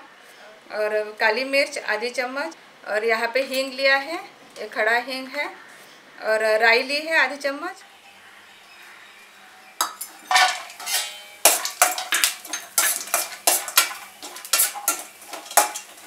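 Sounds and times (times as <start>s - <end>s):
metal spatula scraping a pan: 9.8s - 16.0s.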